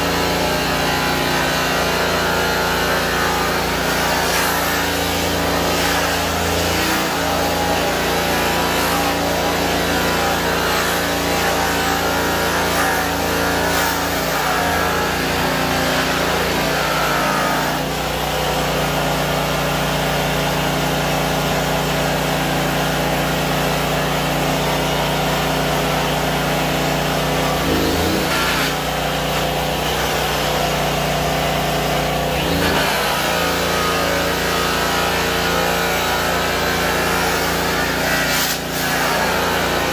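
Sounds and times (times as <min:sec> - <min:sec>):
rotary sander whining on metal: 0:00.0 - 0:39.9.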